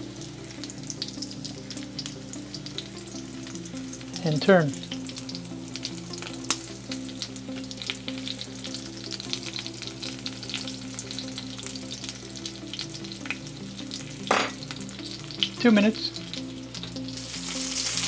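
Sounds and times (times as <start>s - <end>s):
chicken frying in oil: 0.0s - 18.0s.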